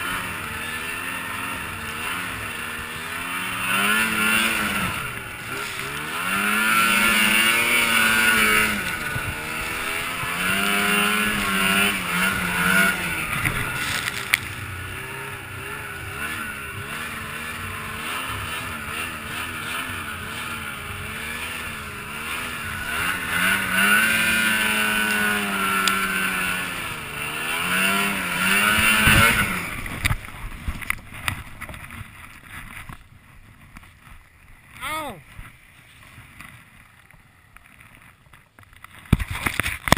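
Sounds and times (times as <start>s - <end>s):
snowmobile engine revving: 0.0s - 31.9s.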